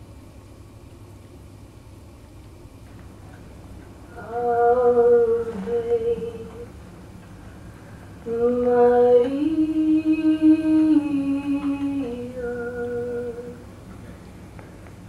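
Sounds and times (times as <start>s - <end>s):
woman humming a slow melody: 4.1s - 6.7s, 8.2s - 13.7s.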